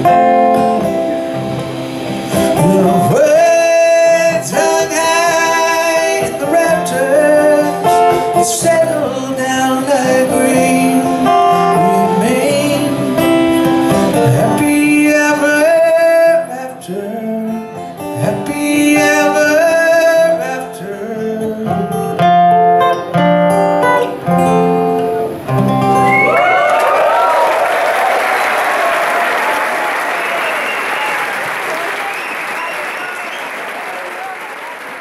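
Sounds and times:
acoustic guitar strumming: 0.0 - 26.3
man singing: 2.3 - 22.5.

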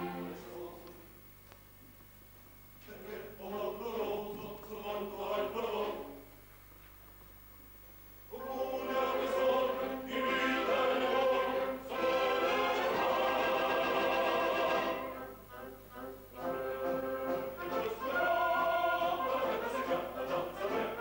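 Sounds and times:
opera chorus with orchestra: 0.0 - 0.9, 2.8 - 6.3, 8.3 - 21.0.

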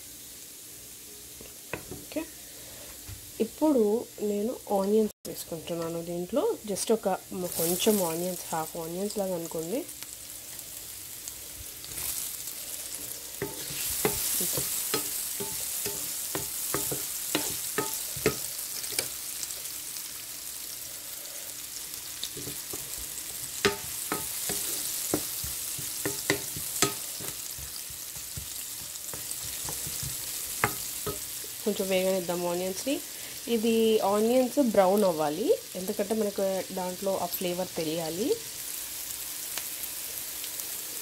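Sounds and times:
onion sizzling in hot oil: 0.0 - 41.0
wooden spatula scraping pan: 13.4 - 19.1, 22.3 - 31.3.

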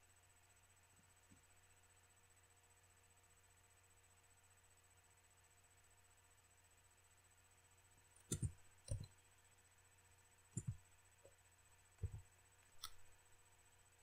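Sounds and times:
computer keyboard keystrokes: 8.3 - 9.1.

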